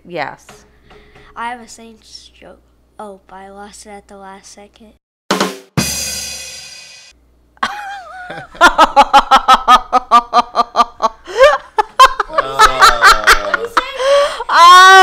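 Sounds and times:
drum rimshot: 5.3s - 7.1s
cymbal crash ringing: 5.8s - 7.1s
loud laughter: 7.6s - 15.0s.

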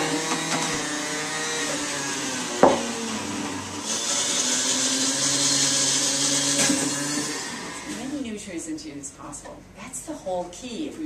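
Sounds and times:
juicer motor humming: 0.0s - 8.1s.

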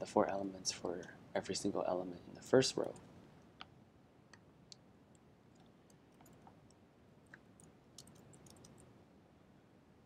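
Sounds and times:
computer keyboard typing: 7.6s - 8.8s.

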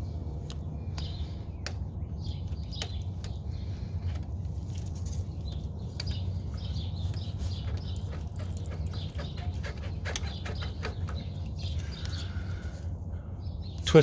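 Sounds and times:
steady low rumble: 0.0s - 9.4s
small birds chirping: 0.0s - 14.0s.

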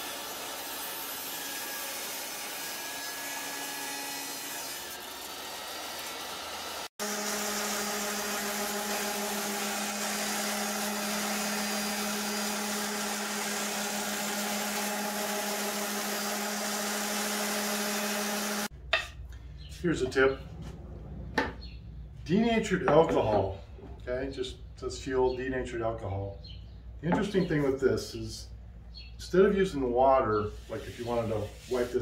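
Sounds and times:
table saw cutting wood: 0.0s - 18.7s
orbital sander humming: 6.4s - 18.7s.

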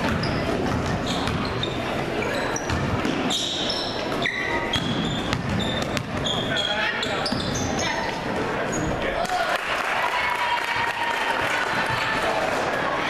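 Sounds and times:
basketball dribbling: 0.0s - 1.9s, 2.6s - 3.4s, 4.0s - 7.9s
sneakers squeaking: 0.0s - 9.2s
spectators talking: 0.0s - 13.0s.

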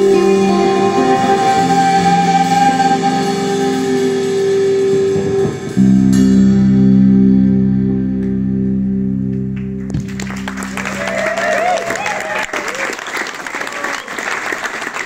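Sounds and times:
drums: 0.0s - 8.6s, 9.7s - 12.8s
electric guitars: 0.0s - 12.8s.

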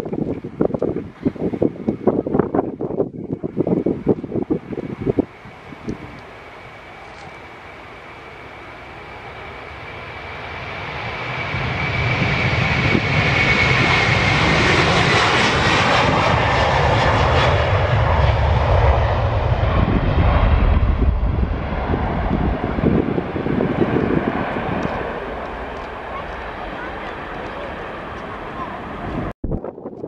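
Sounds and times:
deep jet rumble: 0.0s - 30.0s
jet engines at takeoff thrust: 0.0s - 30.0s.

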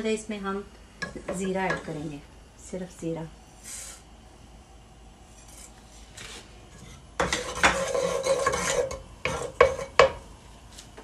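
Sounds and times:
wooden spoon scraping a pot: 5.3s - 10.0s.

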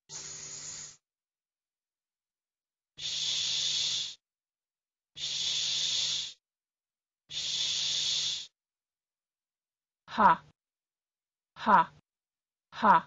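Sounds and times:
person making sh sound: 3.0s - 4.2s, 5.2s - 6.4s, 7.3s - 8.5s.

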